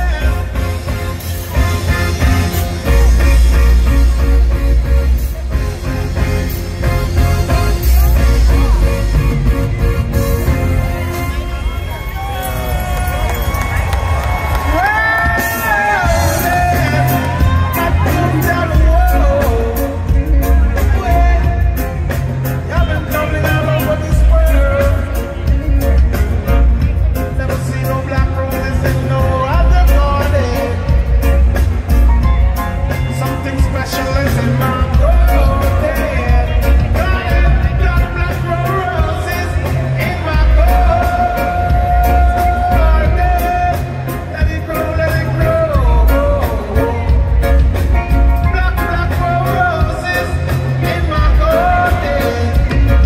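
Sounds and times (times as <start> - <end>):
man singing into microphone: 0.0 - 0.8, 14.8 - 31.3, 33.0 - 47.8, 48.4 - 53.0
live reggae band playing: 0.0 - 53.0.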